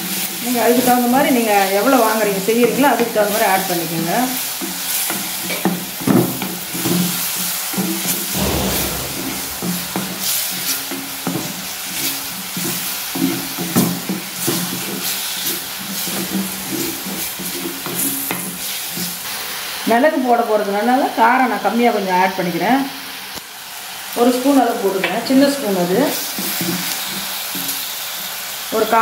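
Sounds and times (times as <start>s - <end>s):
frying sizzle: 0.0s - 10.6s, 11.4s - 29.0s.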